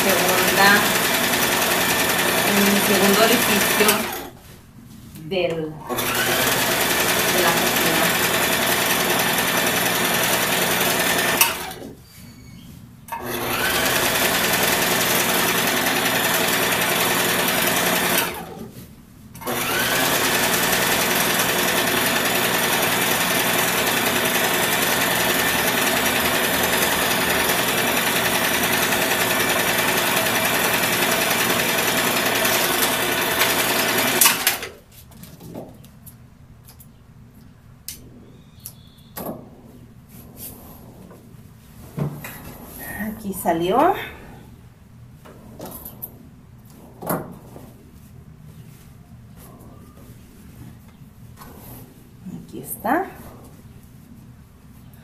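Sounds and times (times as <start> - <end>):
electric sewing machine running: 0.0 - 4.4, 5.9 - 11.9, 13.2 - 18.6, 19.4 - 34.8.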